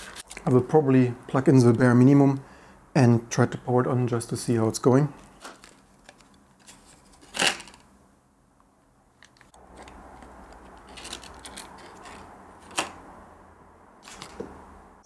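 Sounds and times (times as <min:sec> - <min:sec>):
plastic bag rustling: 0:09.2 - 0:13.0.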